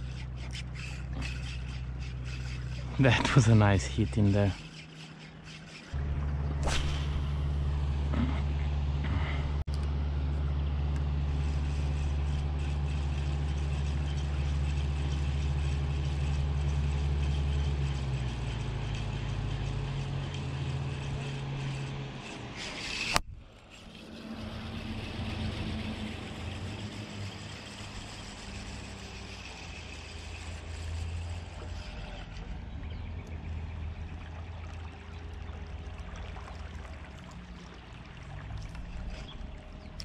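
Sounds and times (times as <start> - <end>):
motor droning: 0.0 - 40.0
swish ending in sharp click: 6.6 - 7.3.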